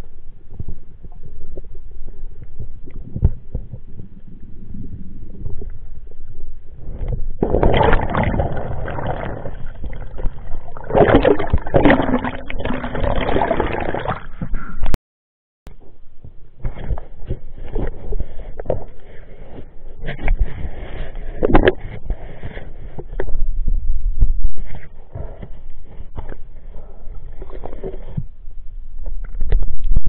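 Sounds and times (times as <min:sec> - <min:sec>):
muffled underwater rumble: 0:00.0 - 0:15.0, 0:15.7 - 0:30.0
water sloshing and splashing: 0:06.9 - 0:14.5.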